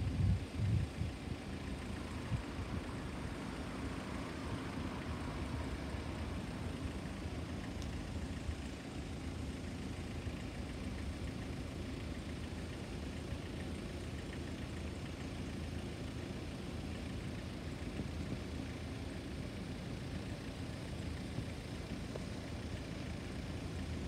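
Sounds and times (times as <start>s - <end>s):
road vehicle engines rumbling: 0.0s - 24.0s.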